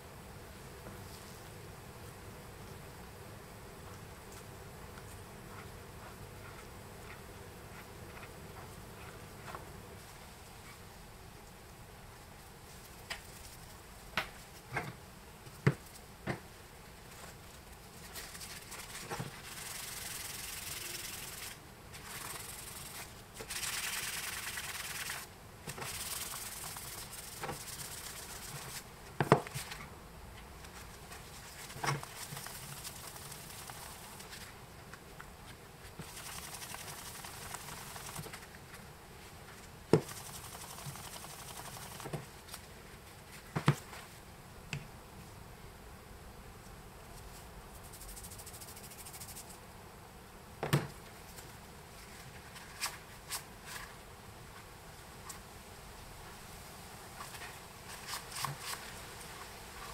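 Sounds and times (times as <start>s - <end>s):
paper towel rubbing metal: 18.0s - 28.8s, 31.2s - 34.5s, 36.0s - 38.4s, 40.0s - 42.2s.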